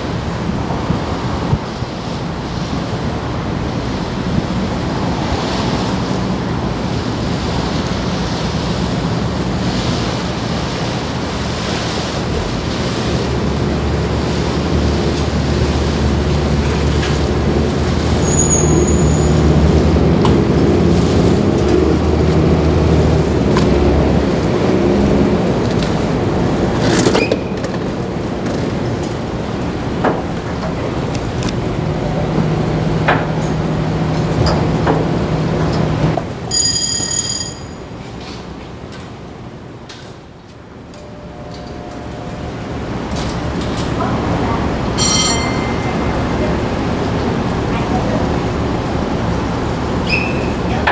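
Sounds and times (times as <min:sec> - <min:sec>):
water churning: 0:00.0 - 0:36.6, 0:37.8 - 0:50.9
boat engine drone: 0:00.0 - 0:50.9
high beep: 0:36.5 - 0:37.8.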